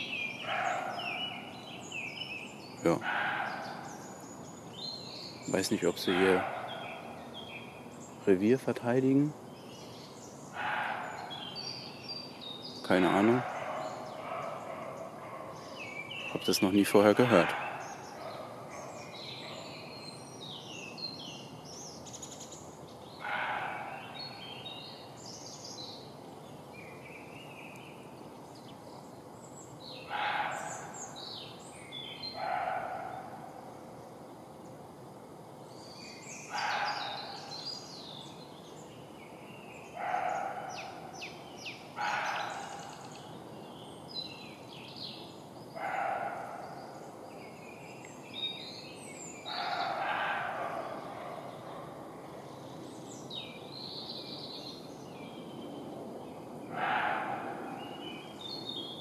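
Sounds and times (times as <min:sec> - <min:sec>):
deer barking: 0:00.5 - 0:01.3, 0:02.8 - 0:04.0, 0:06.0 - 0:07.2, 0:10.6 - 0:11.4, 0:13.0 - 0:15.7, 0:17.2 - 0:19.7, 0:23.2 - 0:24.2, 0:30.1 - 0:31.0, 0:32.4 - 0:33.5, 0:36.5 - 0:37.5, 0:40.0 - 0:41.0, 0:42.0 - 0:43.0, 0:45.8 - 0:46.8, 0:49.5 - 0:52.1, 0:56.7 - 0:57.9.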